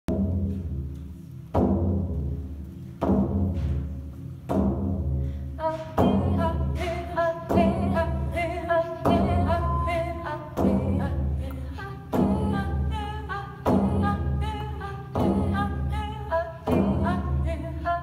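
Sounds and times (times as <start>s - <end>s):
frame drums beating: 0.1s - 18.0s
women singing: 5.6s - 18.0s.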